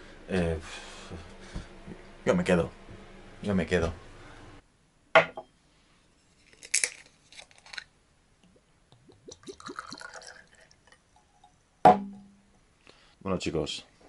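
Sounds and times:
liquid glugging into glass: 8.5s - 11.4s.

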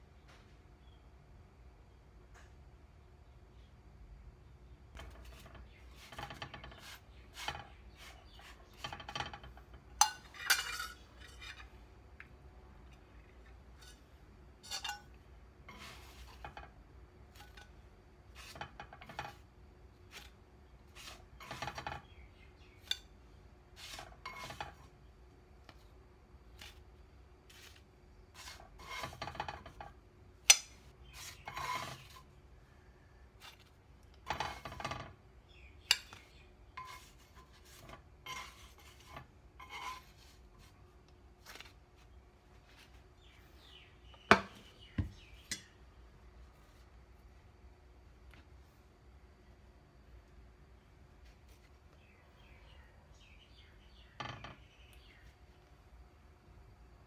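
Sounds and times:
metal spoon scraping frying pan: 5.0s - 11.8s, 13.4s - 19.5s, 20.1s - 23.2s, 23.8s - 24.9s, 27.5s - 32.4s, 33.4s - 35.0s, 35.8s - 40.7s.

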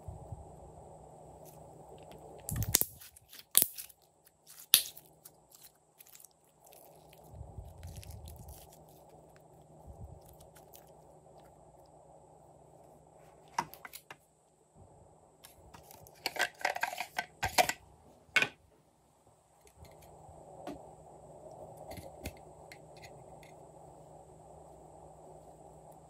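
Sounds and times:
crackly rustles: 1.4s - 11.9s, 15.4s - 18.3s
slime squelching: 2.0s - 11.6s.

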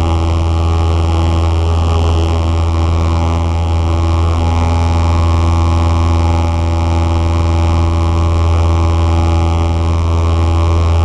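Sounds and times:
propeller plane engine droning: 0.0s - 11.0s.

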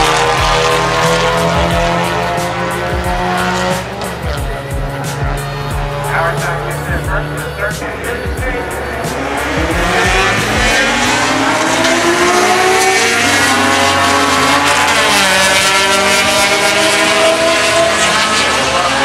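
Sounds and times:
car engine accelerating: 0.0s - 19.0s.

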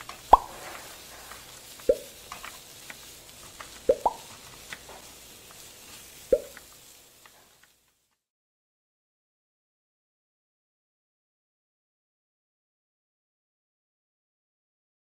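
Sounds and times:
water drop plops: 0.3s - 0.5s, 1.9s - 2.1s, 3.9s - 4.2s, 6.3s - 6.6s
faint ticks: 6.3s - 8.2s.

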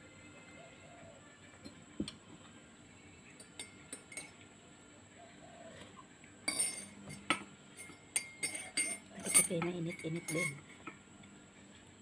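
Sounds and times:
spoon clinking against a mug: 3.4s - 4.4s, 6.4s - 11.0s.

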